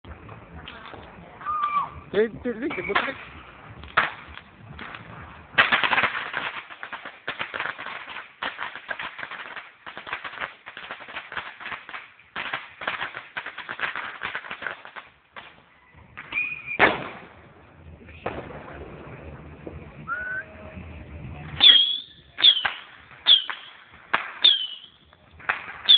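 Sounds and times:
firecrackers crackling: 0.0s - 25.9s.

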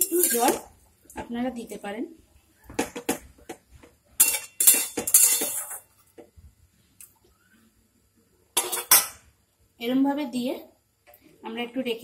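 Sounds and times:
metal spatula scraping a pan: 4.2s - 5.9s.

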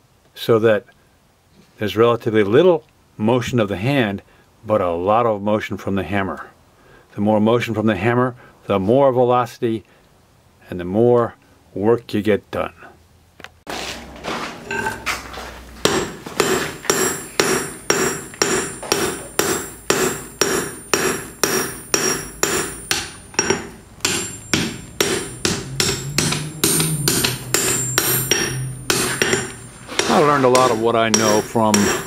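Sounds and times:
hammer striking steel on anvil: 14.7s - 15.0s, 15.8s - 32.0s.

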